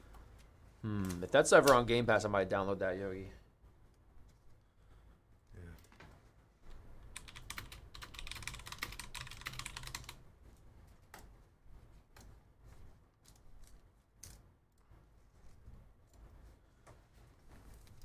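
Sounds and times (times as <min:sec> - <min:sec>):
computer keyboard typing: 0:07.0 - 0:10.2.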